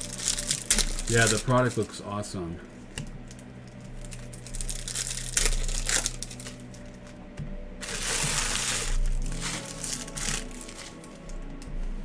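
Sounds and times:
cards being handled: 0:00.0 - 0:01.9, 0:07.8 - 0:11.8
foil wrappers crinkling: 0:00.0 - 0:02.0, 0:02.9 - 0:07.2, 0:07.8 - 0:11.7.

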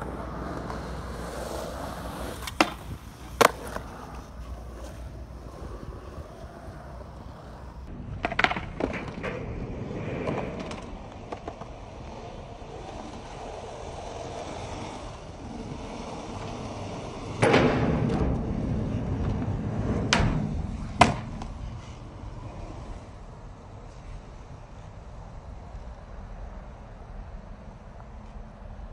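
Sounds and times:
skateboard clacks and landings: 0:00.0 - 0:23.0
skateboard wheels rolling on concrete: 0:00.0 - 0:28.9.

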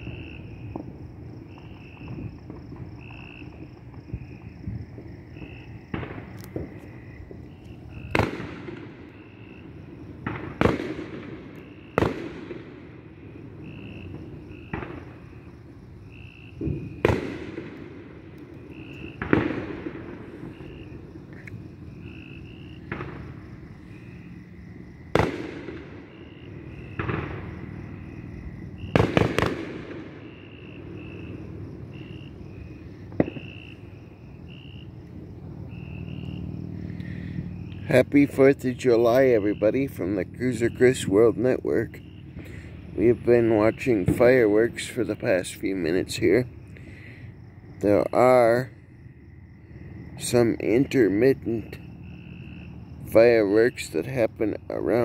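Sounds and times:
insects chirping: 0:00.0 - 0:55.0
fireworks bangs echoing: 0:05.0 - 0:07.4, 0:08.0 - 0:15.4, 0:16.6 - 0:21.1, 0:22.8 - 0:23.5, 0:25.1 - 0:28.0, 0:28.8 - 0:31.9, 0:33.1 - 0:33.6, 0:43.4 - 0:45.0.

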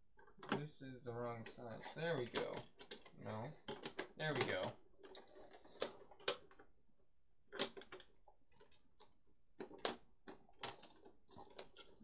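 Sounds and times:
plastic parts clicking together: 0:00.2 - 0:00.6, 0:01.4 - 0:06.7, 0:07.5 - 0:12.0.

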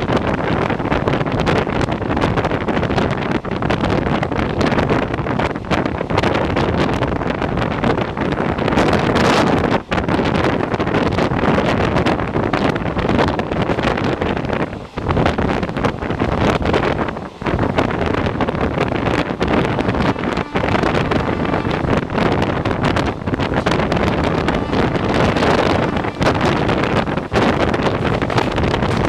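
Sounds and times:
train running at speed: 0:00.0 - 0:29.0
wind buffeting microphone: 0:00.0 - 0:29.0.

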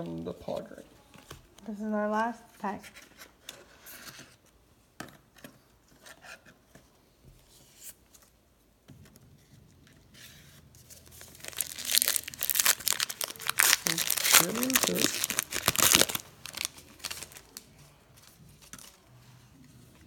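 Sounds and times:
wrapper crinkling and tearing: 0:11.0 - 0:17.7.

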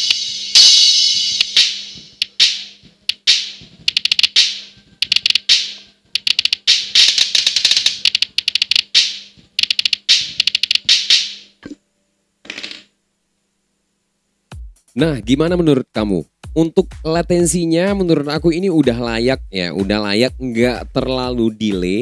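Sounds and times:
cymbal crashes: 0:00.0 - 0:03.7
drum rolls: 0:00.0 - 0:11.5, 0:14.5 - 0:22.0
faint steady hum: 0:00.0 - 0:17.4.

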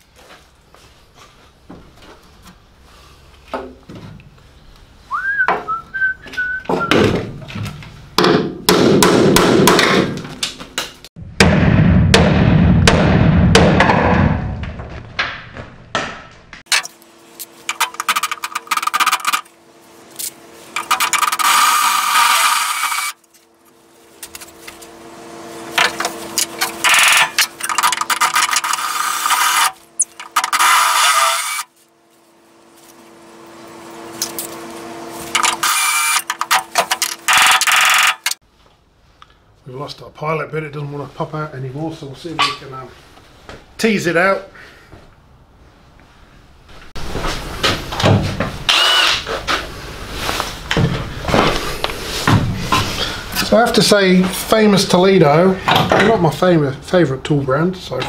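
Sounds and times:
cordless drill whining: 0:20.8 - 0:23.2, 0:30.4 - 0:31.7, 0:35.3 - 0:36.2, 0:48.7 - 0:49.3
cutter chattering on sheet metal: 0:20.8 - 0:23.2, 0:26.5 - 0:31.7, 0:35.3 - 0:38.4.

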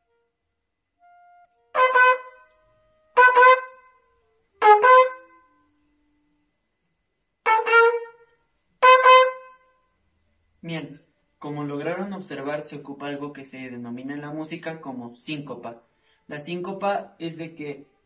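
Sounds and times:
solo trumpet playing: 0:00.0 - 0:00.4, 0:01.0 - 0:06.4, 0:07.4 - 0:09.9.

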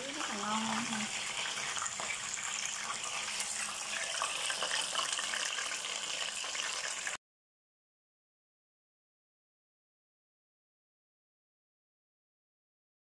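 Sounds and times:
fish sizzling in hot oil: 0:00.0 - 0:07.2.

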